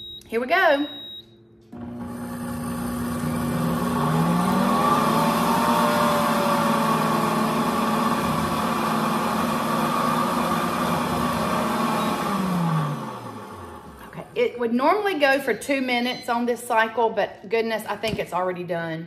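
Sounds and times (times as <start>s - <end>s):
blender grinding oats: 1.8s - 14.5s.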